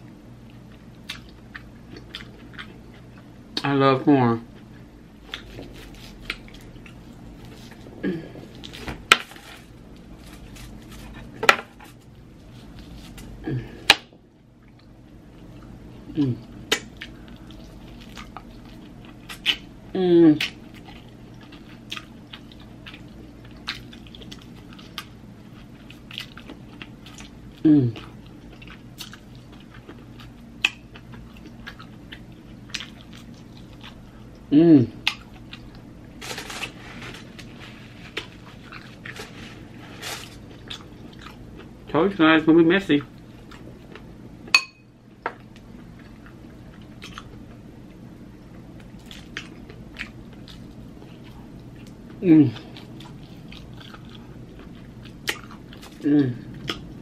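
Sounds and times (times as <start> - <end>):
person eating: 0.5 - 3.7, 4.4 - 14.0, 14.6 - 41.8, 48.8 - 57.0
wet chewing: 0.5 - 3.7, 16.7 - 19.7, 20.3 - 41.8, 45.4 - 47.6, 48.8 - 57.0
tableware clinking: 44.6 - 44.9.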